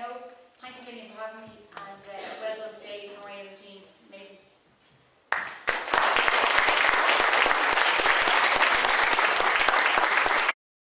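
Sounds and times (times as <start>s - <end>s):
audience applauding: 5.3s - 10.6s.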